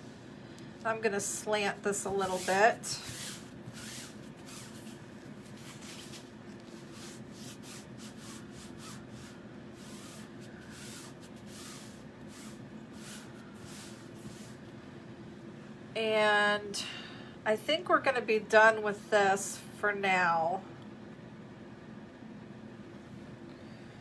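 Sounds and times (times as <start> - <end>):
low steady hum: 0.0 - 24.0
hands rubbing fabric: 2.1 - 14.6.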